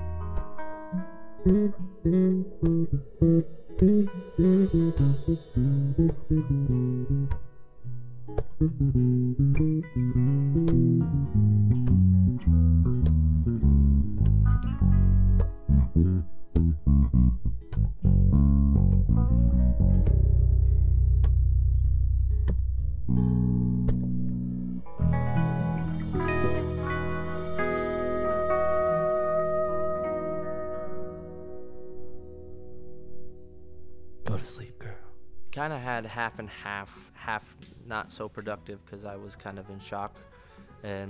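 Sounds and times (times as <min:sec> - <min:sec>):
acoustic and electric guitars: 0:00.0 - 0:33.6
bass guitar: 0:00.0 - 0:35.6.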